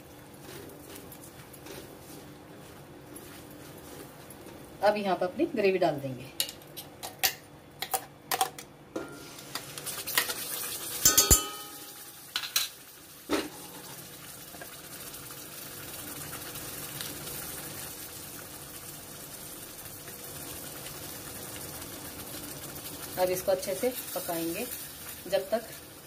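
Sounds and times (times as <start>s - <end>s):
gravy sizzling in pan: 9.2s - 26.0s
jar and spatula knocking on pan: 11.1s - 11.9s.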